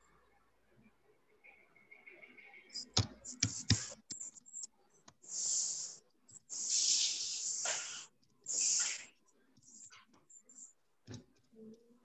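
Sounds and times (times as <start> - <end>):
hiss bursts: 5.3 - 9.1.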